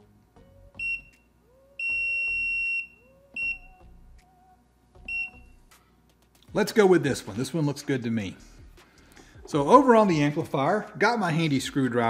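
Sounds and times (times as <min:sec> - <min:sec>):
multimeter beeps: 0:00.8 - 0:01.2, 0:01.8 - 0:03.8, 0:05.1 - 0:05.5.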